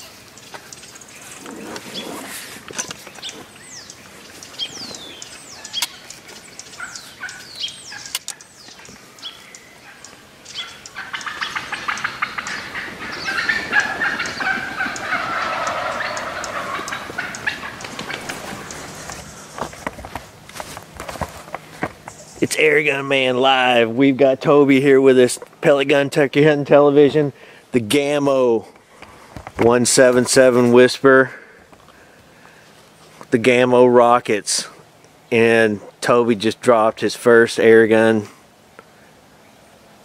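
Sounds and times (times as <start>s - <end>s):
wild turkeys clucking and yelping: 0.0s - 22.4s.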